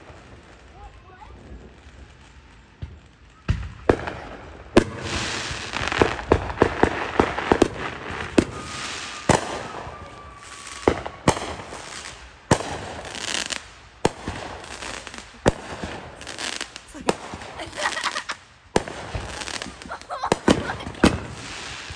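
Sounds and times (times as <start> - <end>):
firework booms: 0.0 - 21.9
fireworks bangs: 0.0 - 21.9
fireworks crackling: 0.0 - 21.9
faint firework whistle: 2.1 - 4.0, 8.1 - 12.1.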